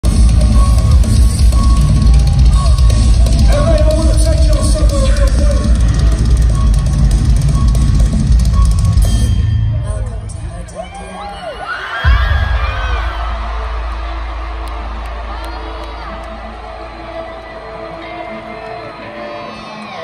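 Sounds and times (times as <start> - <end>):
live rock band music: 0.0 - 10.8.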